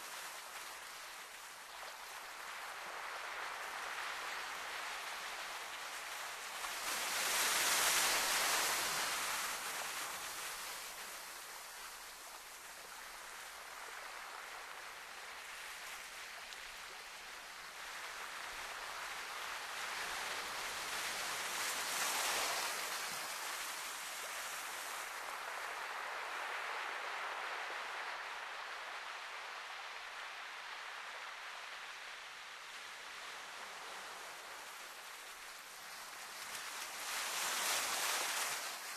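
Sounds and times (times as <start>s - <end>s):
sea surf waves hissing: 19.2s - 26.8s.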